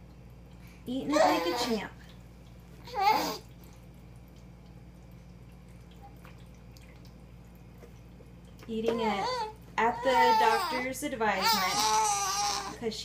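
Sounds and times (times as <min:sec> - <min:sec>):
baby vocal sound: 0:02.8 - 0:03.5, 0:08.9 - 0:12.8.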